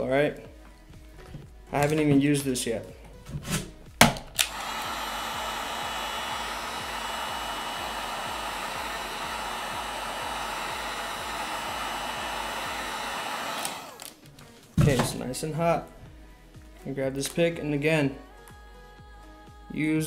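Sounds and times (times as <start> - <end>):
heat gun switch click: 4.0 - 4.9, 13.1 - 14.2
heat gun blowing air: 4.3 - 14.2.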